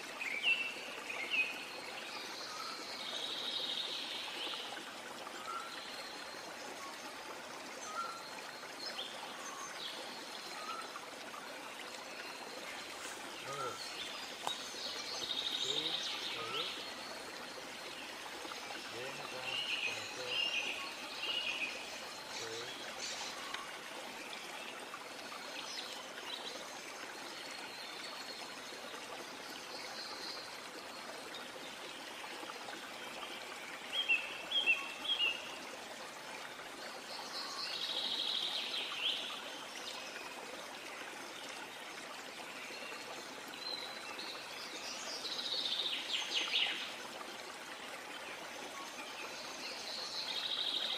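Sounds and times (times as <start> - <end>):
small birds chirping: 11.8 - 23.8.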